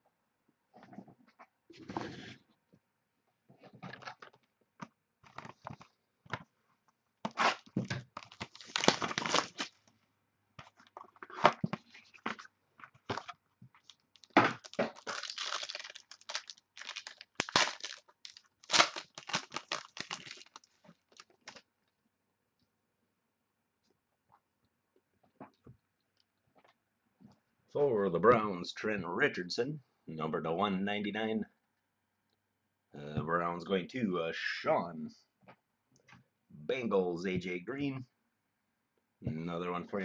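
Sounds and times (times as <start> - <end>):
plastic wrapping crinkling and tearing: 7.4 - 9.8, 11.8 - 21.6.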